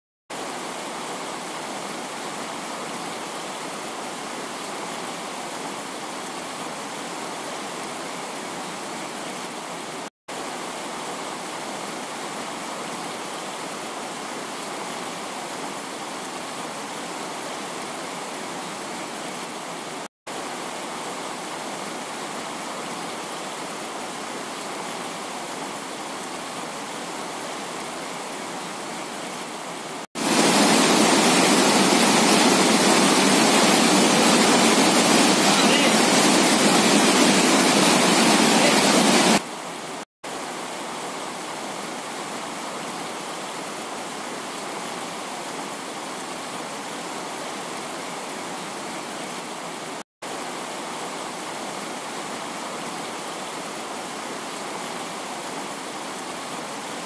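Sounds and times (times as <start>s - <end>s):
waterfall rushing: 15.1s - 57.0s.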